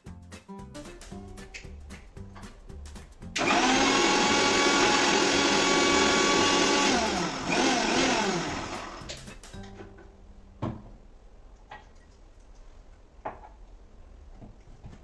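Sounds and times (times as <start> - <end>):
mixer grinder blending liquid: 3.4 - 9.1.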